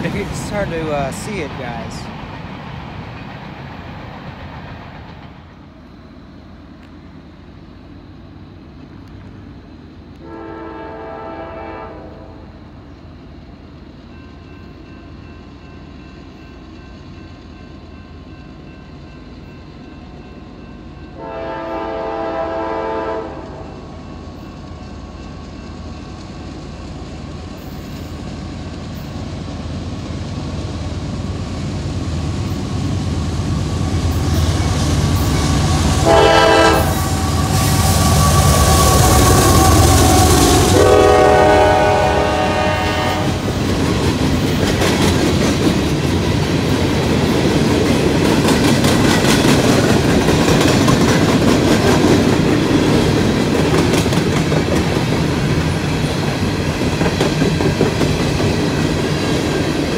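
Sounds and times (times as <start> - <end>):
diesel locomotive rumble: 0.0 - 18.8, 19.4 - 59.9
train horn blasts: 10.2 - 12.5, 21.2 - 23.9, 35.6 - 43.5.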